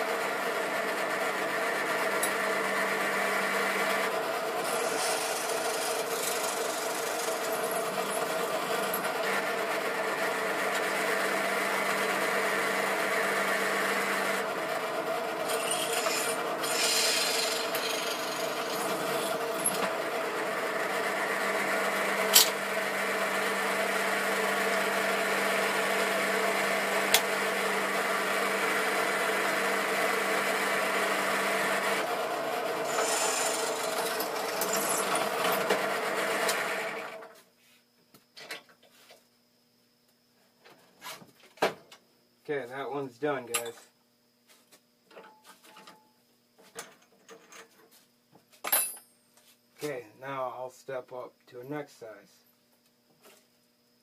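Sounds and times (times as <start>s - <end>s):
drill press motor hum: 0.0s - 37.4s
drill bit grinding: 2.0s - 10.9s, 15.4s - 22.7s, 30.7s - 37.2s.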